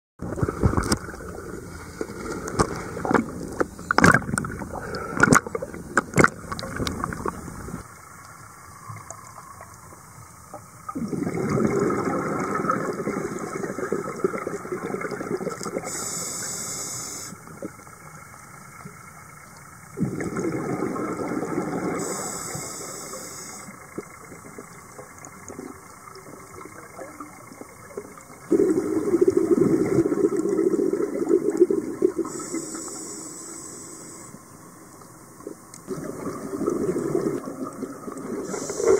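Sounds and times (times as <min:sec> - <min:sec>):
scuba regulator bubbling exhalations: 0:00.2 - 0:07.8, 0:11.0 - 0:17.2, 0:20.0 - 0:24.1, 0:28.4 - 0:32.9, 0:35.9 - 0:38.9
regulator hiss: 0:15.8 - 0:17.6, 0:21.6 - 0:25.0, 0:32.1 - 0:35.0, 0:38.3 - 0:38.9.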